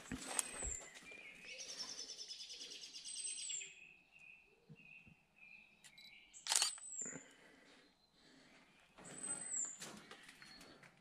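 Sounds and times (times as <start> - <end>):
footsteps through undergrowth: 0.0 - 1.4
bird chirping: 0.2 - 7.2.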